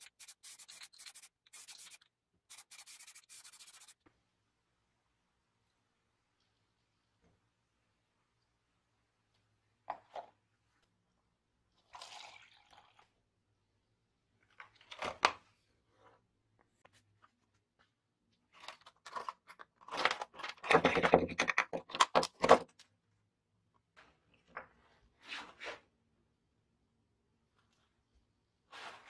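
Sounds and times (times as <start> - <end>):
liquid pouring into plastic cup: 11.8 - 13.2.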